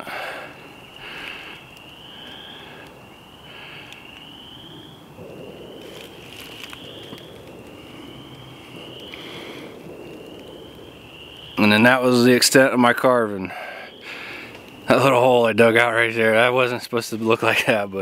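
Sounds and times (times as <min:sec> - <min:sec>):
faint rustling: 0:05.2 - 0:10.5.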